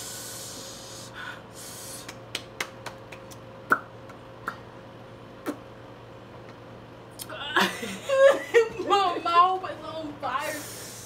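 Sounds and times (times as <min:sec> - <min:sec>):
woman breathing hard: 0:00.0 - 0:02.1.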